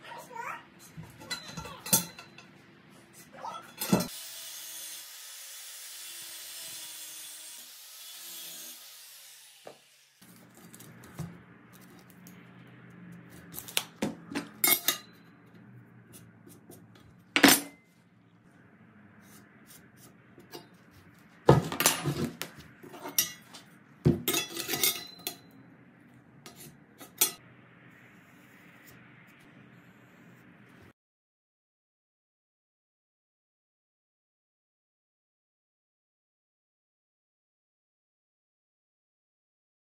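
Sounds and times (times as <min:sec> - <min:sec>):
metal tools clacking on wood bench: 0:01.1 - 0:02.6, 0:03.7 - 0:04.1, 0:21.5 - 0:25.4
angle grinder whirring: 0:04.0 - 0:10.5.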